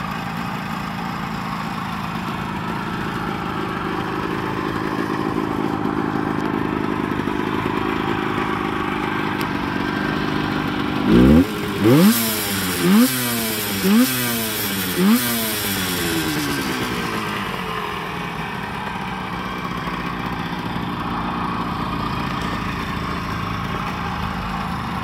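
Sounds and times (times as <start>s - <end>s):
two-stroke engine revving and idling: 0.0s - 25.0s.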